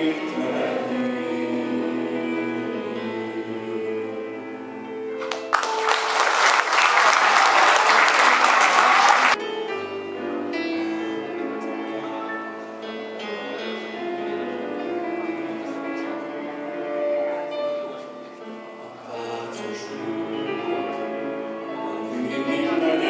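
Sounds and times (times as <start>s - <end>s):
backing music: 0.0s - 23.0s
audience applauding: 5.2s - 9.4s.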